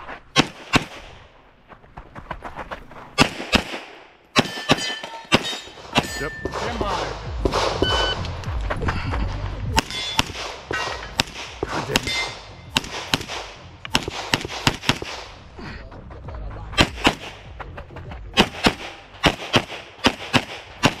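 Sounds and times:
rapid pistol gunfire: 3.2 - 7.8, 12.7 - 15.4, 16.8 - 17.5, 18.4 - 21.0.

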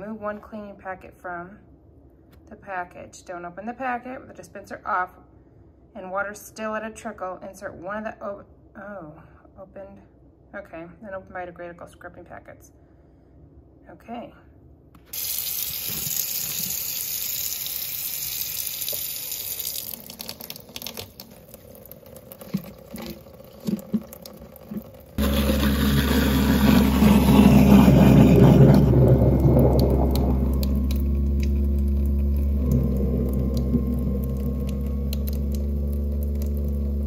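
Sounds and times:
faucet running into sink: 15.1 - 37.0
garbage disposal grinding: 15.2 - 37.0.

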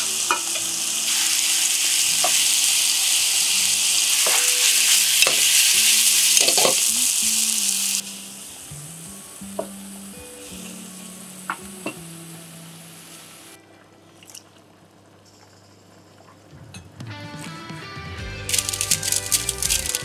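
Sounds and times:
food sizzling in frying pan: 0.0 - 8.8, 9.4 - 13.6, 18.5 - 20.0.

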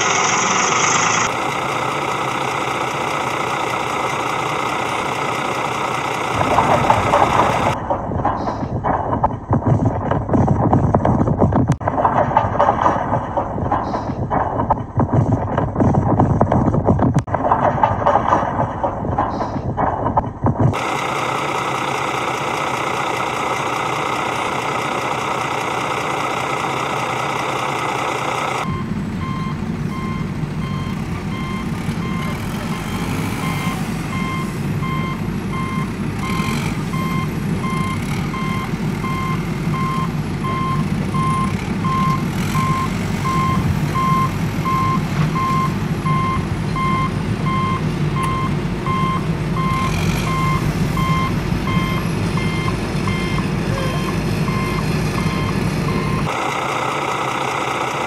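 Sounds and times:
low engine rumble: 0.0 - 58.0
truck reversing alarm beeps: 22.2 - 56.5.

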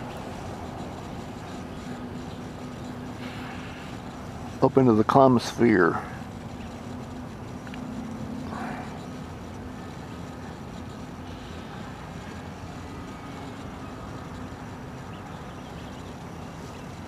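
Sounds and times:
model airplane motor droning: 0.0 - 17.0.

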